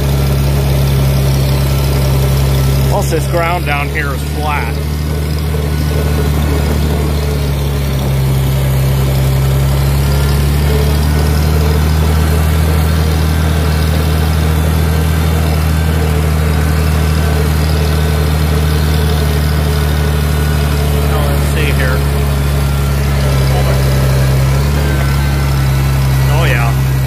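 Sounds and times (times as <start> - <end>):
tractor engine running: 0.0 - 27.0.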